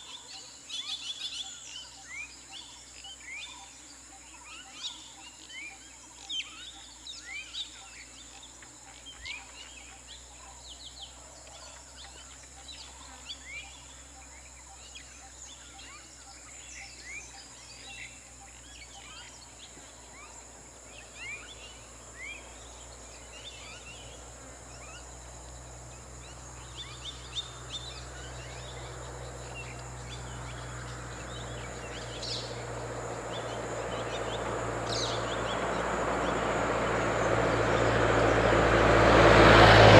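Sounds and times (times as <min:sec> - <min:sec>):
birds chirping: 0:00.0 - 0:39.9
approaching vehicle rushing: 0:21.2 - 0:39.9.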